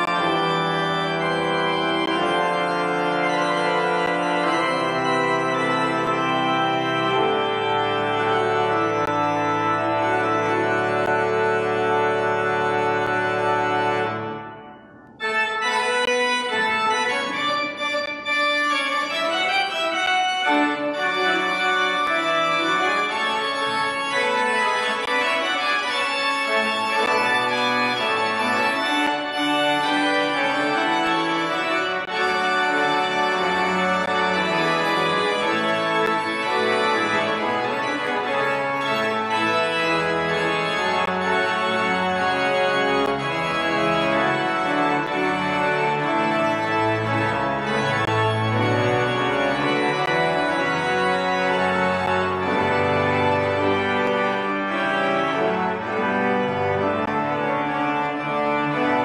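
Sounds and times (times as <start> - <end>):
church organ playing: 0.0 - 59.0.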